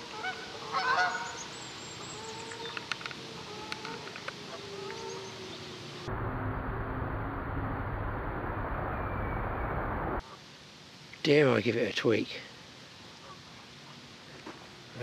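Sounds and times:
geese honking: 0.0 - 1.5, 2.1 - 5.6
steady hiss: 0.0 - 15.0.

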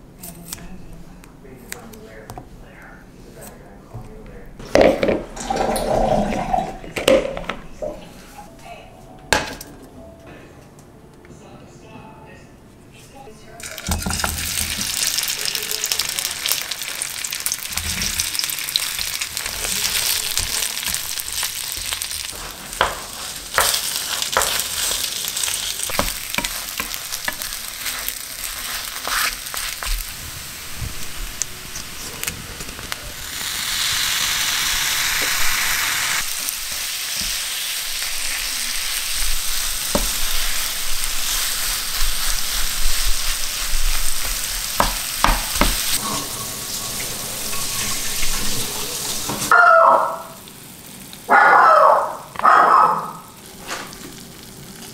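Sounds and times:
food sizzling in oil: 13.6 - 49.6, 50.2 - 51.3
spatula scraping and tapping pan: 18.8 - 30.0, 41.2 - 48.5.

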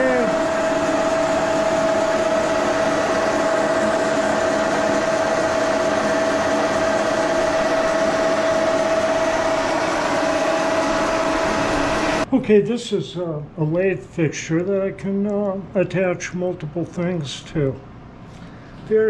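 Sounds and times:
constant whining tone: 0.0 - 12.3
machine rushing drone: 0.0 - 12.3.

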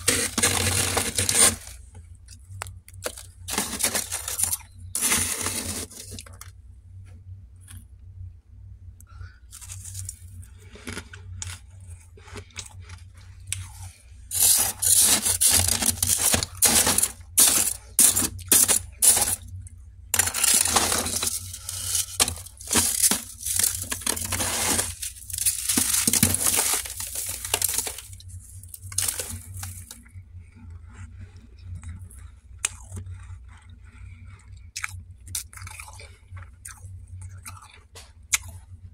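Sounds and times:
hand scraping frost in a pan: 0.0 - 1.8, 3.5 - 6.3, 13.6 - 19.4, 20.2 - 30.0
low steady hum: 0.0 - 38.9.

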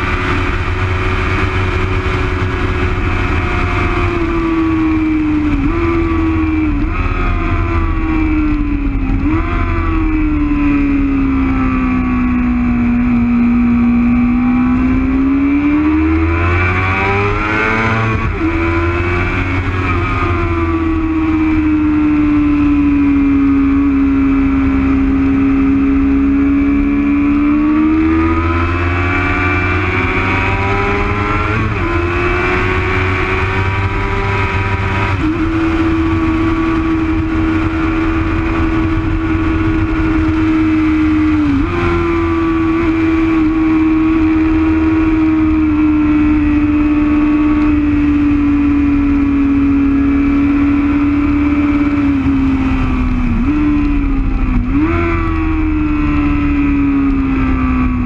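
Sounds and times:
wind rush: 0.0 - 13.0, 27.5 - 46.8, 47.7 - 58.0
motorcycle engine at speed: 0.0 - 58.0.

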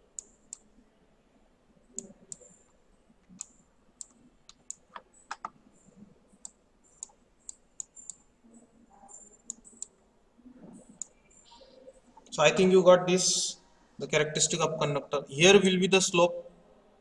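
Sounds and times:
computer mouse buttons clicking: 2.0 - 5.6, 6.4 - 8.2, 9.1 - 9.9.

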